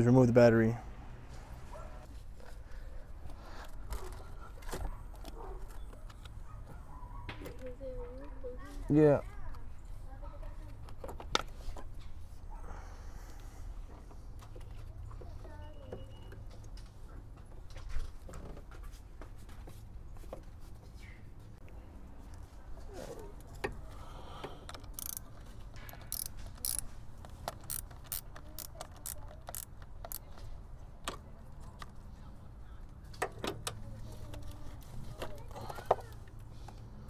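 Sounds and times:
sharp metallic ratchet clicks: 24.7 - 26.9, 27.5 - 30.3.

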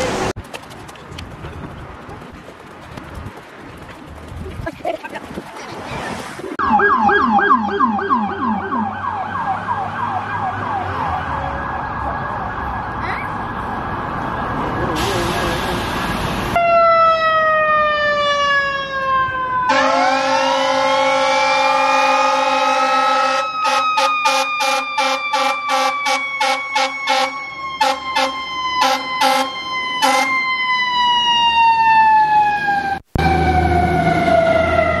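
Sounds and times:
fire engine siren wailing: 6.6 - 35.0
short horn blasts: 19.7 - 30.3.

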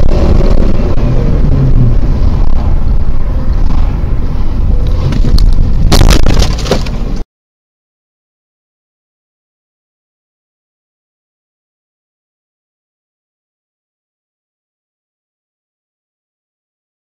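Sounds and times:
car engine road and wind rumble: 0.0 - 7.2
car collision crash: 5.2 - 7.0.

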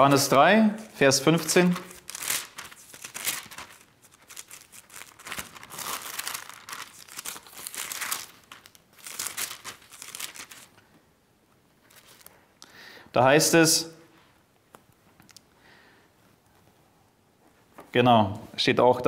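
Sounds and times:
book pages rustling: 1.3 - 10.9, 11.8 - 12.4.

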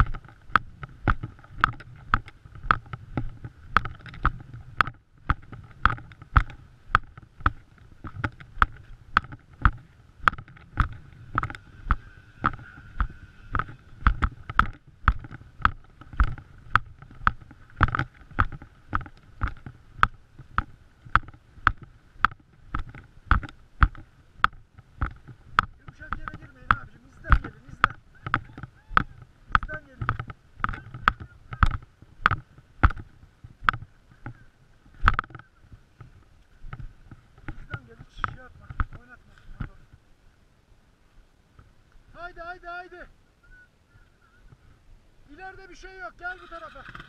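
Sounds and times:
footsteps in wet mud: 0.0 - 40.0.

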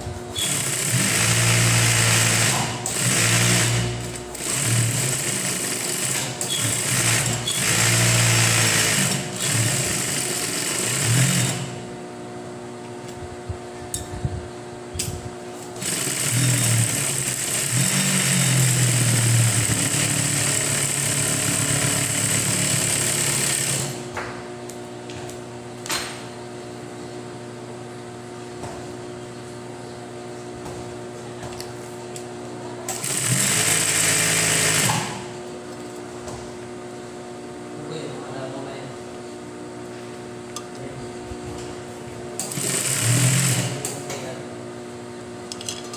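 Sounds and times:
sewing machine stitching: 0.4 - 11.7, 15.8 - 24.0, 32.9 - 35.2, 42.4 - 43.9.

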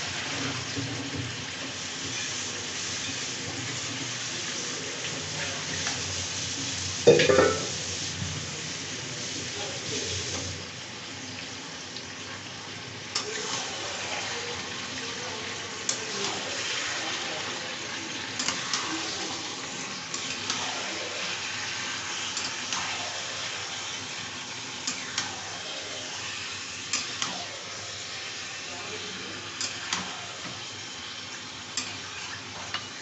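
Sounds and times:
chicken and onions sizzling: 0.0 - 33.0
spatula scraping and knocking pan: 7.1 - 7.8.

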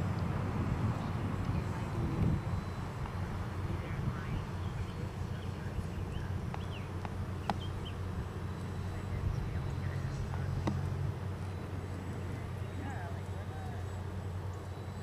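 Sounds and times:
model airplane humming: 0.0 - 15.0
bird chirps: 4.2 - 10.5.

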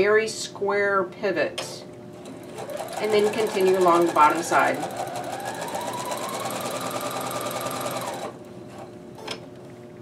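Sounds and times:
sewing machine motor whine: 2.2 - 8.4.

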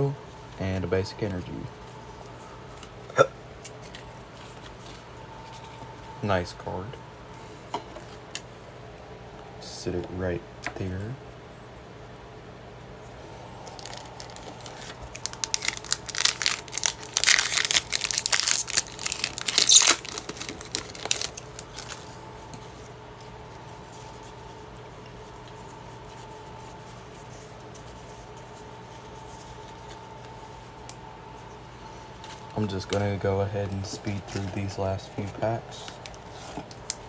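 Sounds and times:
faint steady hum: 0.0 - 37.0
foil wrapper crinkling and tearing: 13.6 - 22.2.

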